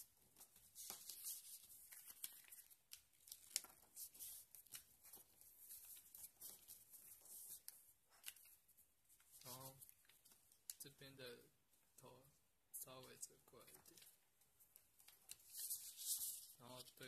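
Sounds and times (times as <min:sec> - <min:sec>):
paper rustling and scraping: 0:00.4 - 0:08.6, 0:15.3 - 0:17.0.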